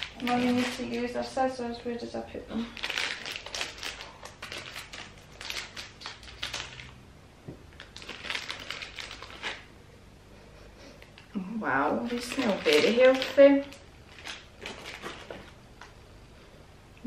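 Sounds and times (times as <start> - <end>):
plastic bag crinkling: 0.0 - 1.7, 2.6 - 7.0, 7.7 - 9.7, 11.0 - 15.6.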